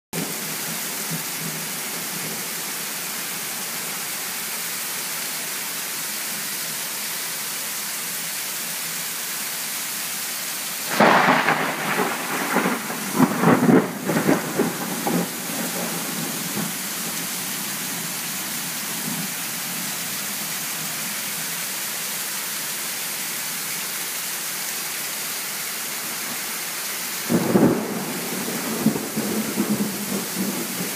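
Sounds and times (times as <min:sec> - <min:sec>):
heavy rain falling: 0:00.1 - 0:30.9
thunder cracking and rumbling: 0:10.9 - 0:16.8, 0:27.3 - 0:30.9.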